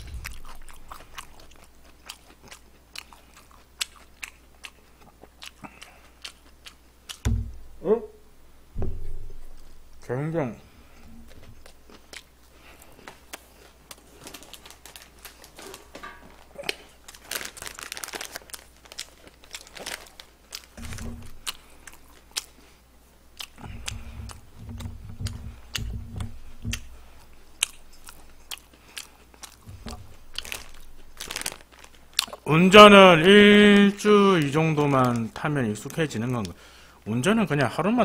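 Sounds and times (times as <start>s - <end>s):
dull low thumps: 0.0s - 1.3s, 7.2s - 10.1s, 23.6s - 28.0s, 29.6s - 31.2s
chewing and crunching fried chicken: 0.0s - 7.2s, 11.5s - 32.8s
wet-wipe packet crinkling: 13.1s - 22.6s, 29.4s - 36.5s.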